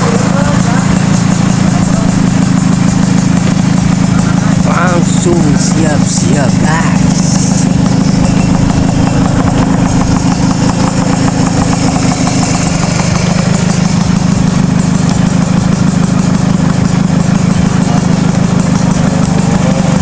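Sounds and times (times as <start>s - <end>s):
scooter engine idling: 0.0s - 20.0s.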